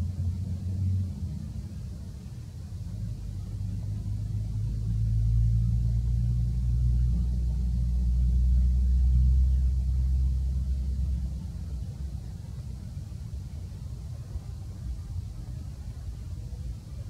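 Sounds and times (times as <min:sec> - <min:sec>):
low motor rumble: 0:00.0 - 0:17.0.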